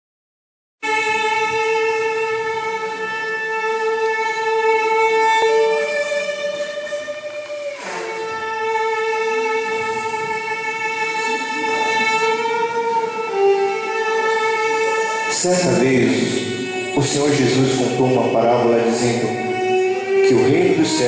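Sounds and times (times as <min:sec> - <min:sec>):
slow violin melody: 0:00.8 - 0:21.0.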